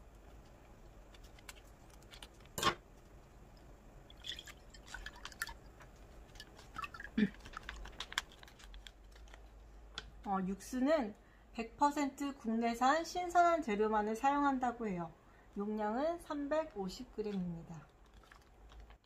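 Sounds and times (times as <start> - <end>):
broth trickling and dripping: 3.4 - 8.8
plastic pouch crinkling: 4.3 - 9.6, 17.3 - 19.0.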